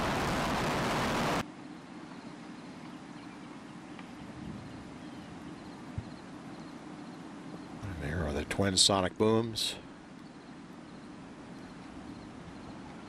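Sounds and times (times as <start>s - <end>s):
distant rocket liftoff roar: 0.0s - 1.4s
steady low hum: 0.0s - 13.0s.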